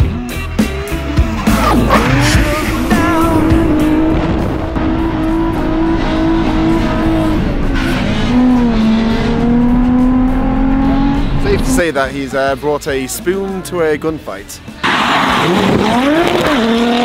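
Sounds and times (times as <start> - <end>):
car engine at high revs: 1.2 - 11.8, 14.8 - 17.0.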